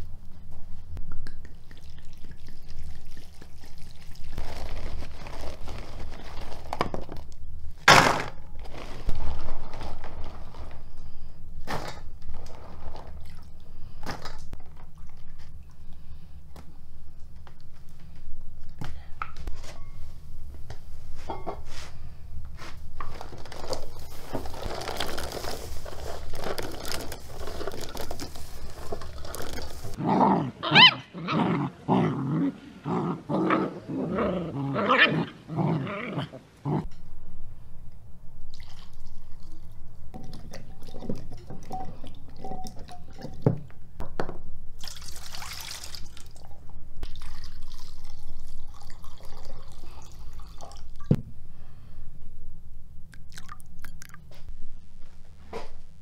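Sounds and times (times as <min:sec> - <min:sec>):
puppies yelping: 0:30.6 - 0:31.2.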